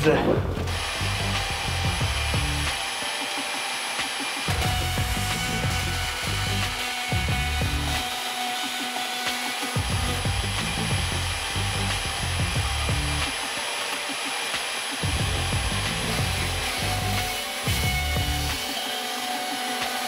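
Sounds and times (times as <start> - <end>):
background music with bass line: 0.0 - 2.8, 4.5 - 8.1, 9.8 - 13.5, 15.0 - 18.7
bandsaw cutting sheet steel: 0.0 - 20.0.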